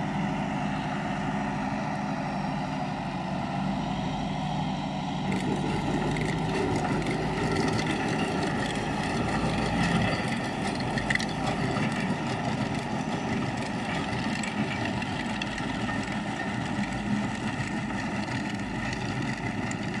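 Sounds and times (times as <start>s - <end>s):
tractor diesel engine running: 0.0s - 20.0s
clicking rattle of spreader beaters: 5.3s - 20.0s.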